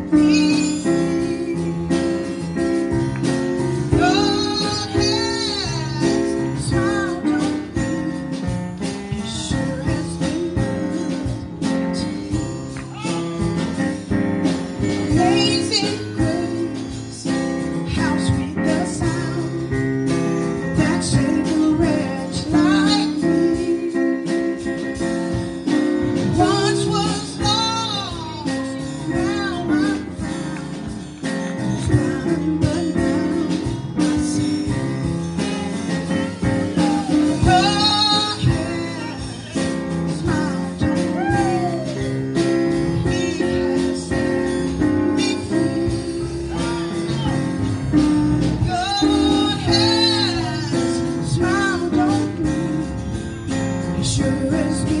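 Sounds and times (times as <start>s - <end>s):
woman singing into microphone: 0.0s - 1.7s, 3.9s - 8.1s, 9.1s - 13.1s, 15.1s - 19.8s, 20.7s - 24.6s, 26.2s - 30.9s, 31.8s - 34.7s, 36.7s - 42.0s, 43.0s - 44.4s, 48.6s - 52.9s, 54.0s - 55.0s
praise band playing: 0.0s - 55.0s.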